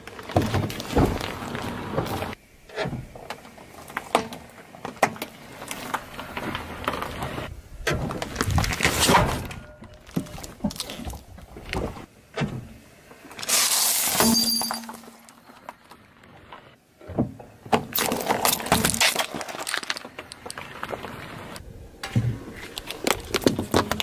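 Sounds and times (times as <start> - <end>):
tyre crushing objects on asphalt: 0.0 - 2.4, 3.0 - 12.1, 17.7 - 21.6, 22.2 - 24.0
plate shattering: 14.1 - 15.3.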